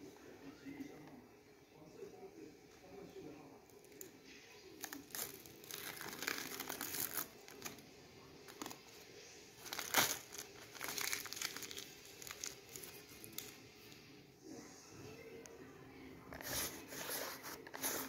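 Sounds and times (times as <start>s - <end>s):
adhesive sheet peeling and tearing: 9.7s - 13.4s.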